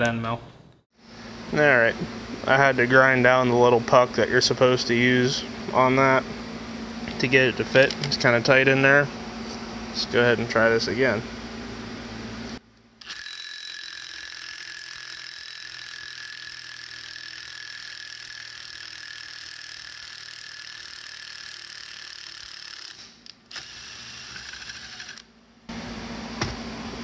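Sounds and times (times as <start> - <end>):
power tool running: 13.0 - 25.3.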